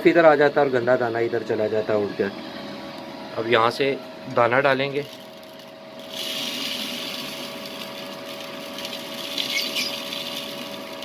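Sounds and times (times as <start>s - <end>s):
electric fan humming: 0.0s - 11.0s
seed pouring and rattling: 5.0s - 11.0s.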